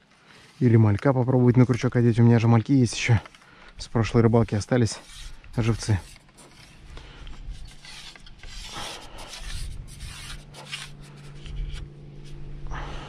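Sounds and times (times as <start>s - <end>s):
fishing tackle rustling: 0.0s - 12.6s.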